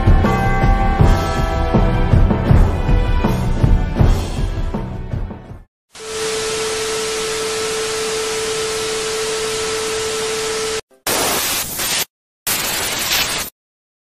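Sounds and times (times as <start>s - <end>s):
television static hiss: 6.1s - 13.5s.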